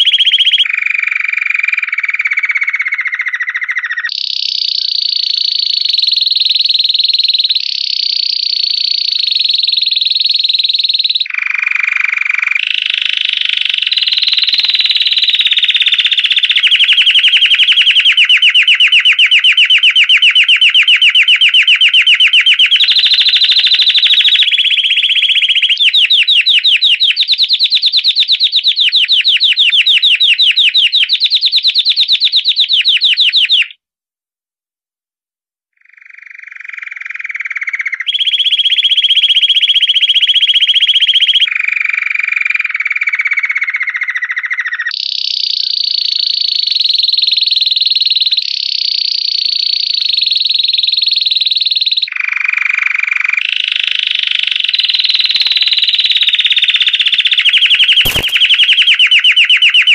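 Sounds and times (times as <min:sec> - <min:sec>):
canary singing trills: 0:00.0 - 0:33.8, 0:35.8 - 0:41.5, 0:54.9 - 0:59.9.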